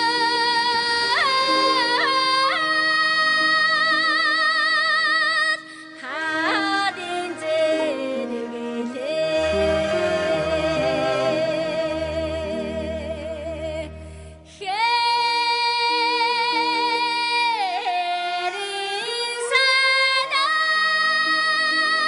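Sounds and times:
woman singing with vibrato: 0:00.0 - 0:22.0
low musical accompaniment: 0:06.0 - 0:15.0.

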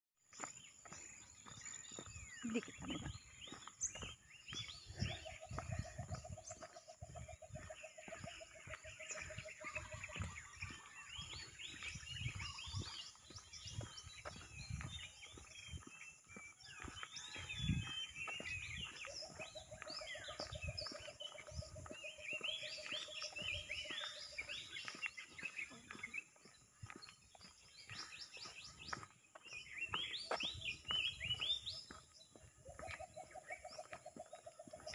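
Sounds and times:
birds chirping and twittering: 0:00.2 - 0:34.9
microphone wind thumps: 0:04.6 - 0:08.2.

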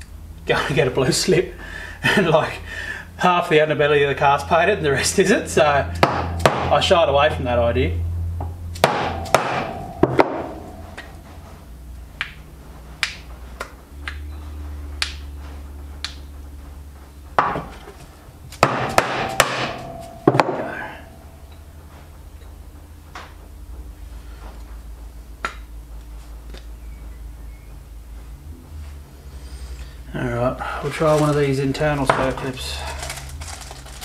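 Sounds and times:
hammer blows with metallic ring: 0:05.8 - 0:11.8, 0:18.6 - 0:22.7.

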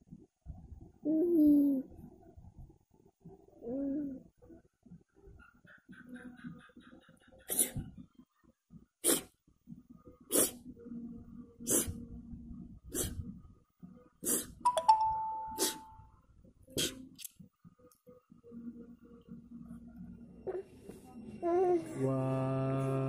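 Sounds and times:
child making breathy puffs: 0:07.5 - 0:07.9
bright ding: 0:14.7 - 0:16.0.

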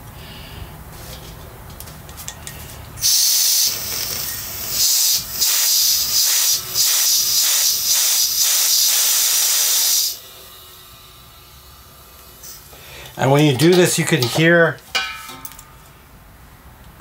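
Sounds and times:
gas hissing from valve: 0:03.0 - 0:10.3.

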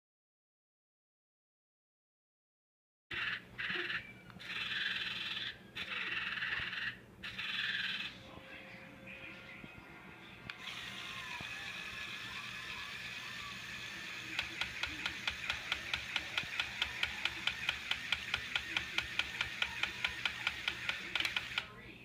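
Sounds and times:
toy motor whirring: 0:03.1 - 0:08.2, 0:10.5 - 0:21.7
plastic gears clicking: 0:12.8 - 0:21.7.

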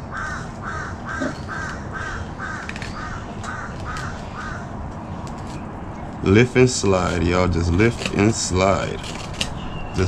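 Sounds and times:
bird calling: 0:00.0 - 0:06.3, 0:08.2 - 0:10.0.

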